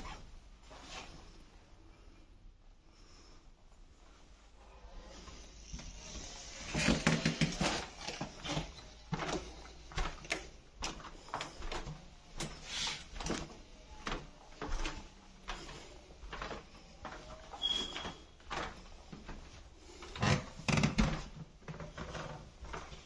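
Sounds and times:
footsteps on carpet: 0:05.2 - 0:20.1
door squeaking: 0:17.5 - 0:18.3.

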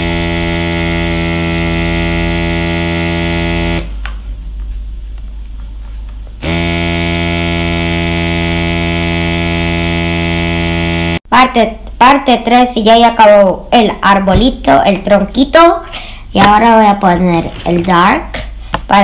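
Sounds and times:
air compressor buzzing: 0:00.0 - 0:04.0, 0:06.4 - 0:11.2.

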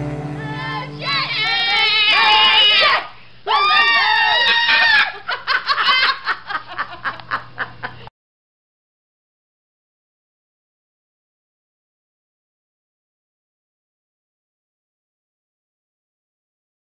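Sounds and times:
high-pitched vocal outbursts: 0:00.4 - 0:04.8.

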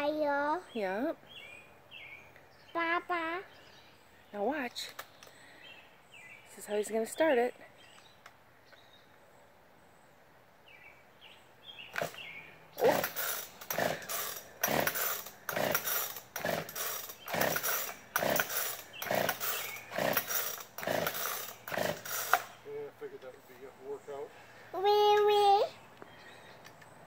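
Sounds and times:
chainsaw starter cord pulls: 0:11.9 - 0:22.6.

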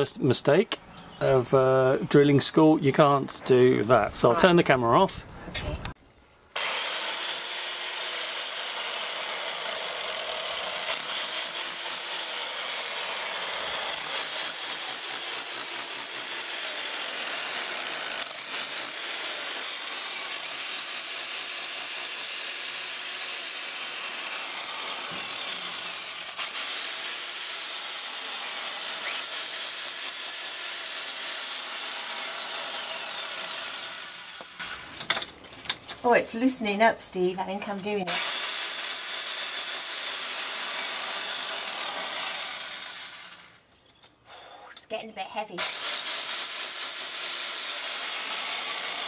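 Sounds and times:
rotary hammer chiselling stone: 0:06.6 - 0:33.5, 0:38.2 - 0:42.2, 0:45.6 - 0:49.0.

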